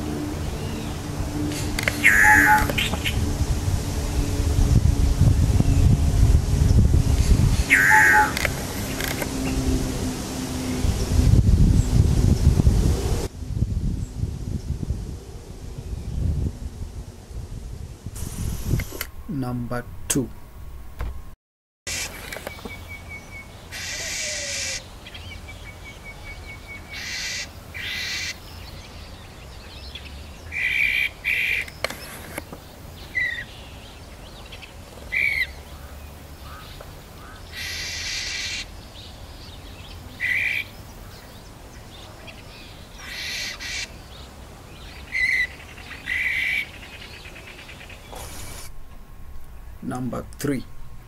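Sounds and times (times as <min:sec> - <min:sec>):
bird harsh rasping calls: 0:00.0 - 0:03.3, 0:07.2 - 0:09.2, 0:23.7 - 0:24.9, 0:26.8 - 0:28.5, 0:30.5 - 0:32.3, 0:35.1 - 0:38.7, 0:40.2 - 0:41.3, 0:42.6 - 0:44.0, 0:44.8 - 0:48.7.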